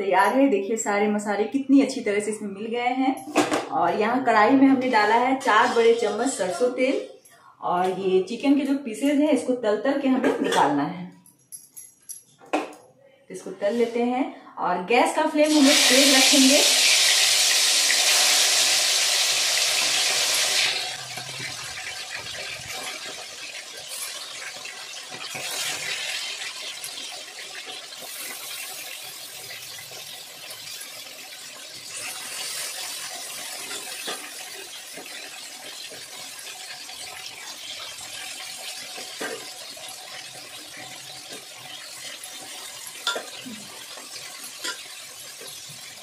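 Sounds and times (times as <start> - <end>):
chicken sizzling in hot oil: 15.4 - 46.0.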